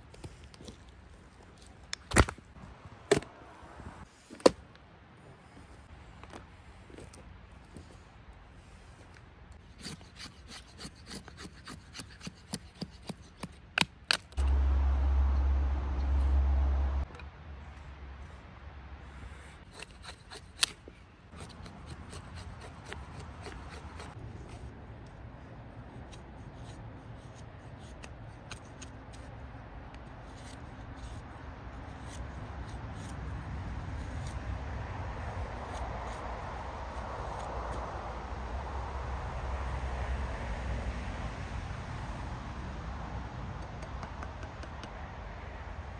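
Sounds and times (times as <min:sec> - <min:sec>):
knife scraping a stick: 0:09.6 - 0:14.5, 0:19.3 - 0:24.7, 0:25.9 - 0:34.4
loud low rumble: 0:14.4 - 0:18.9, 0:36.4 - 0:43.3.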